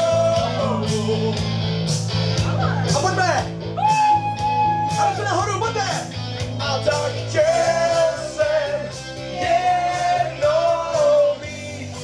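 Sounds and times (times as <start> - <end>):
amplified backing music with beat: 0.0 - 12.0.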